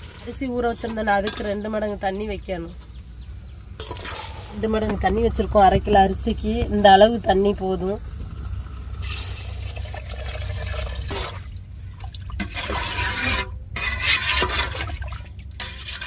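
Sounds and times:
ladle stirring liquid: 3.8s - 4.6s, 9.0s - 16.0s
water pouring into a pot: 8.4s - 13.5s.

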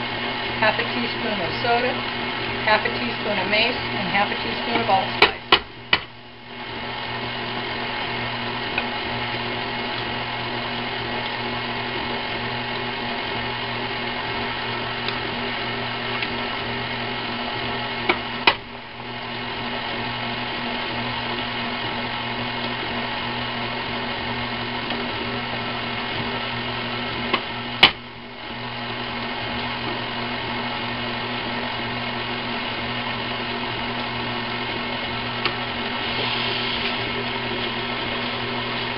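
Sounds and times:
stand mixer running: 0.0s - 38.9s.

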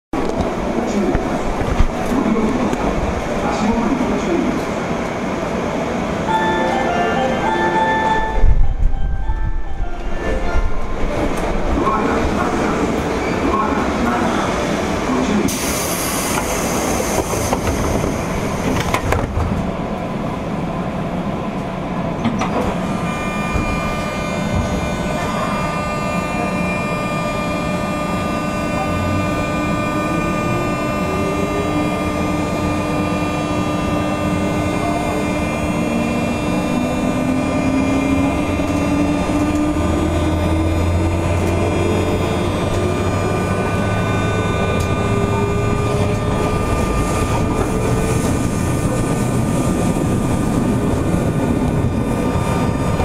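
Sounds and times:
train running rumble: 0.2s - 53.0s
electric train motor whine: 22.3s - 53.0s.

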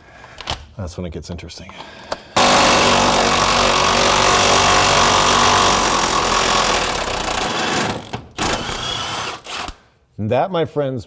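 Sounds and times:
impact wrench hammering: 2.4s - 9.5s.

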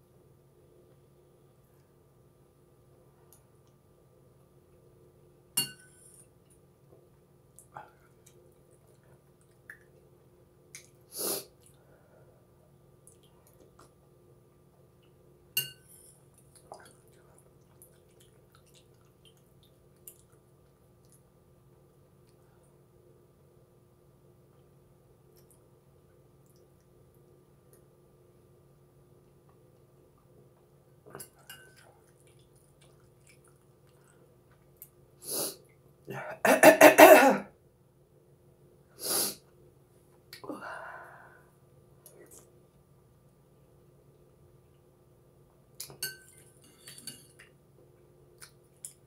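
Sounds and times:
metal spoon clinking on bowl: 5.6s - 6.1s, 15.6s - 16.0s, 46.0s - 47.4s
eating sounds: 16.2s - 21.3s, 31.1s - 35.8s
woman coughing: 36.2s - 37.5s
sharp breath or sniff: 39.0s - 39.4s.

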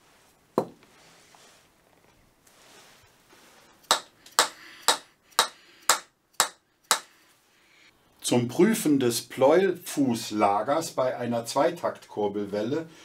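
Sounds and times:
sharp taps on metal: 3.8s - 7.1s.

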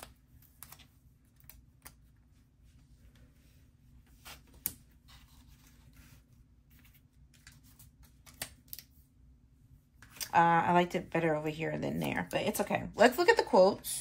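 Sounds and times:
paper handling: 4.0s - 9.0s.

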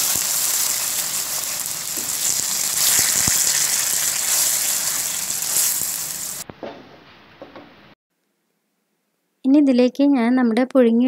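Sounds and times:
paste sizzling in a hot pan: 0.0s - 6.4s.

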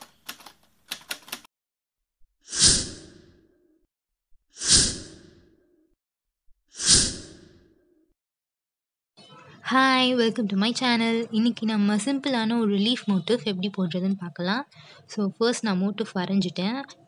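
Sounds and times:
typewriter-style clicks: 0.0s - 1.5s.

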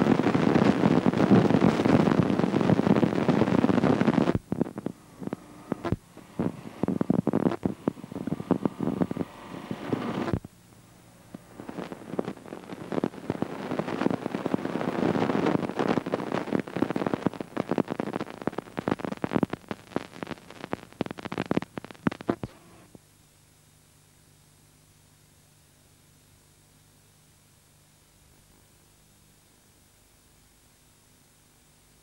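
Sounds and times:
dense crackling and rumbling: 0.0s - 23.0s.

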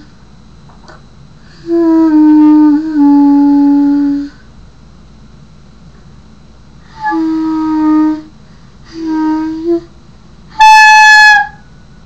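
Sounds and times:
clarinet held notes: 1.5s - 4.4s, 6.9s - 9.9s, 10.5s - 11.6s.

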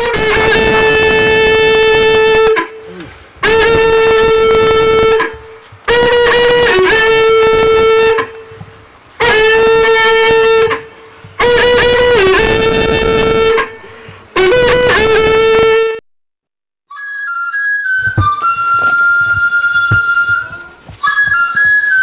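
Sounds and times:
horn blowing long notes: 0.0s - 16.0s.

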